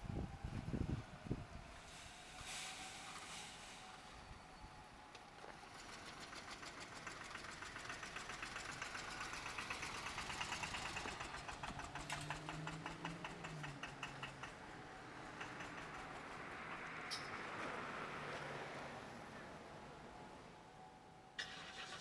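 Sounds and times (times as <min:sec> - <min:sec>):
engine running with rapid ticking: 0:05.5 - 0:17.8.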